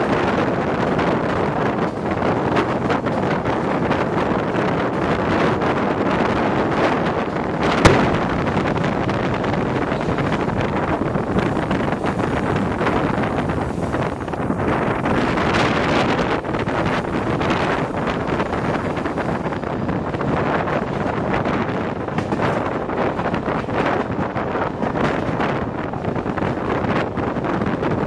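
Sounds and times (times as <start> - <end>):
train running noise: 0.0 - 28.0
wind buffeting the microphone: 0.0 - 28.0.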